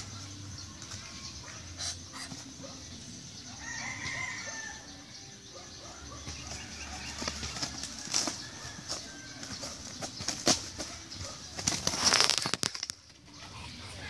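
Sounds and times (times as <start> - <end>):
birds scuffling and wing flaps: 0.0 - 2.8, 6.1 - 14.0.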